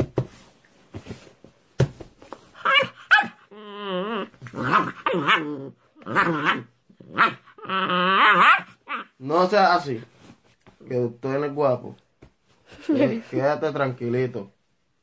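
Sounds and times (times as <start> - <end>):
puppy yapping: 2.6 - 3.5, 4.5 - 9.2
puppy growling: 2.6 - 9.2.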